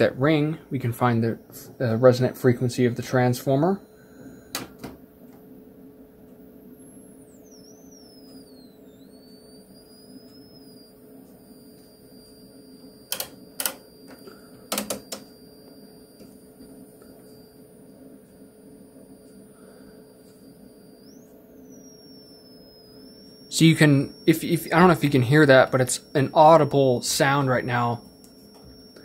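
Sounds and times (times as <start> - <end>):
faint steady hum: 0.0 - 29.0
rotary switch clicks: 13.1 - 13.8
transformer high whine gliding: 18.6 - 29.0.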